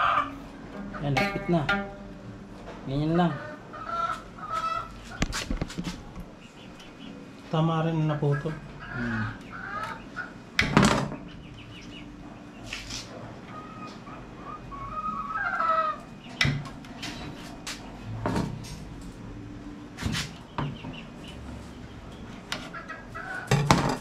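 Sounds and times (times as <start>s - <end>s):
chicken calling: 0.0s - 7.2s, 8.0s - 10.6s, 11.2s - 16.5s, 20.4s - 23.6s.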